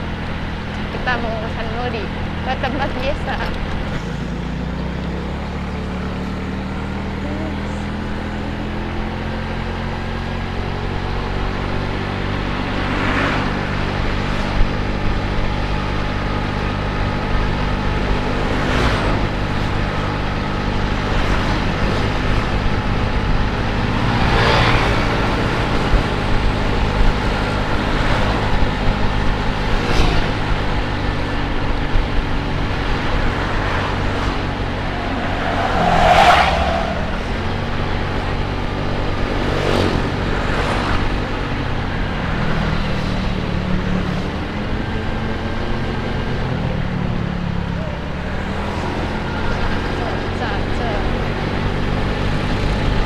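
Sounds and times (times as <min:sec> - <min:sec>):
scooter engine running: 0:00.0 - 0:35.5
vehicles passing: 0:00.0 - 0:53.0.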